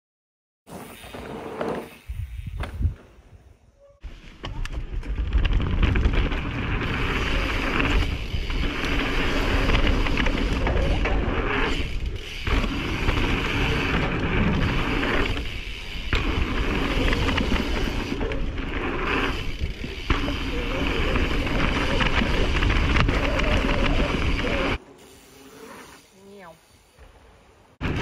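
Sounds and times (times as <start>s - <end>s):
wind rush on microphone: 2.1s - 3.1s
bike tyres rolling over dirt: 4.0s - 26.1s
bike rattling: 4.0s - 27.0s.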